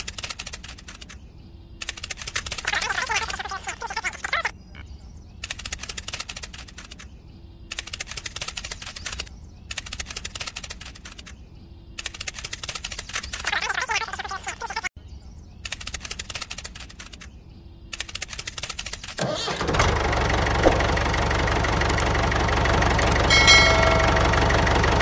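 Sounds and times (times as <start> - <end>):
bird chirping: 0.0 - 19.2.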